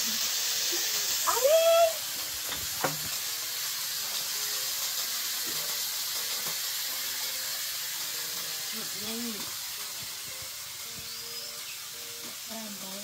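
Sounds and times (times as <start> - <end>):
background hiss: 0.0 - 13.0.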